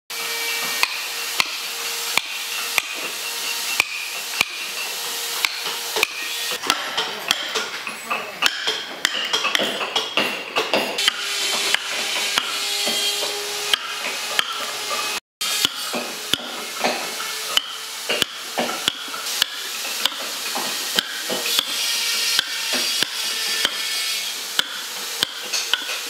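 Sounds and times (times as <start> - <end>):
mallet striking chisel into wood: 0.7 - 3.1, 3.8 - 4.7, 5.4 - 7.8, 8.4 - 14.6, 15.6 - 23.9, 24.6 - 26.0.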